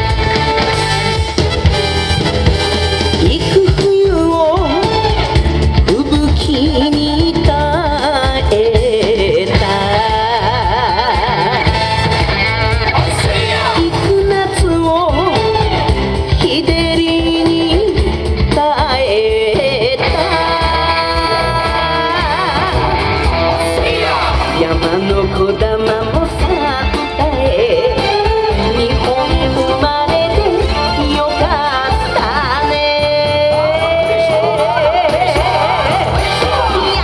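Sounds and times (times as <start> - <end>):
band with steady bass beat: 0.0 - 37.0
singer with heavy vibrato: 16.4 - 37.0.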